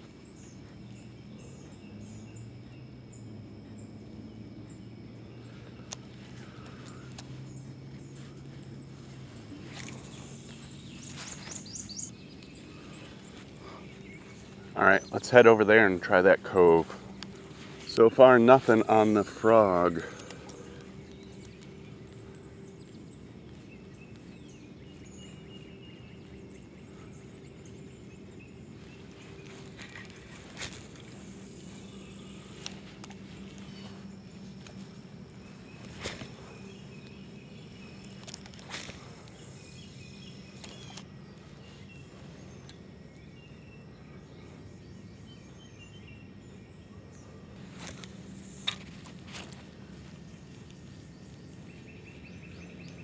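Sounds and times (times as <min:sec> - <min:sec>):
faint high bird chirps: 0:00.0 - 0:53.0
low background hiss: 0:00.0 - 0:53.0
steady low hum: 0:00.0 - 0:53.0
faint clicks: 0:05.7 - 0:07.3.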